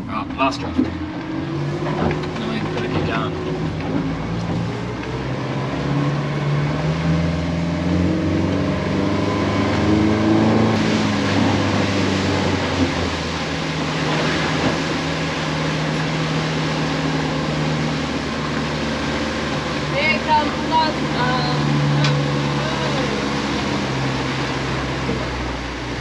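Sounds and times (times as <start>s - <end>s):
outboard engine running: 0.0s - 26.0s
water and wind rushing: 0.0s - 26.0s.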